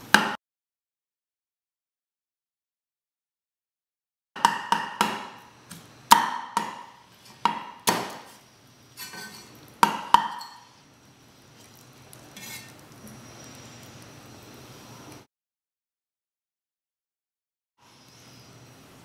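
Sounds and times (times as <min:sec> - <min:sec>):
cleaver chopping bone on wood: 0:04.4 - 0:08.3, 0:09.8 - 0:10.4.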